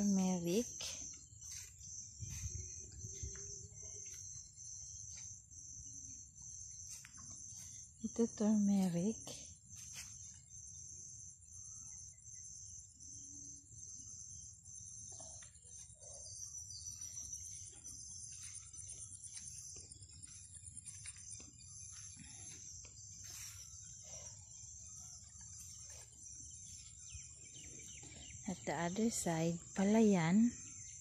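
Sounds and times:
footsteps crunching on dry mulch: 0.0 - 4.4, 18.1 - 24.0
insects trilling: 0.0 - 31.0.

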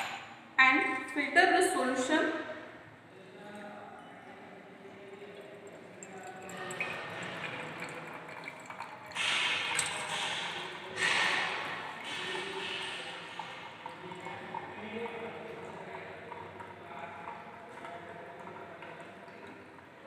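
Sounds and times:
liquid trickling into glass beaker: 4.3 - 20.0.

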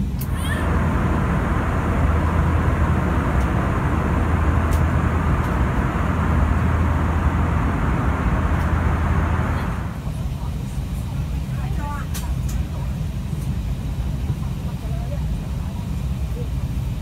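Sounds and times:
low cabin hum: 0.0 - 12.0
ventilation air rushing: 0.0 - 12.0.

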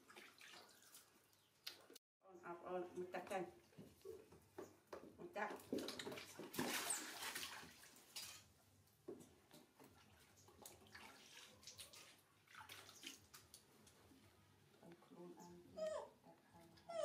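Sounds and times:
water splashing in a tub: 0.0 - 2.0, 5.5 - 8.4, 9.3 - 13.8.

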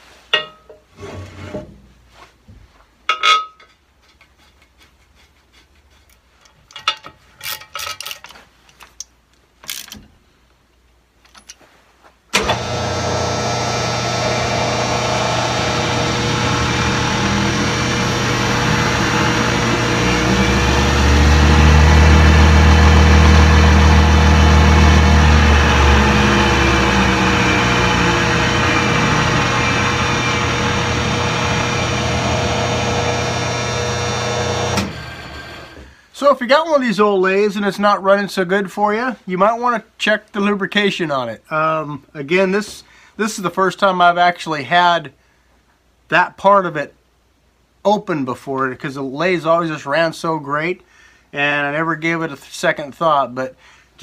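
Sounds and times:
wood lathe motor humming: 12.4 - 35.9.

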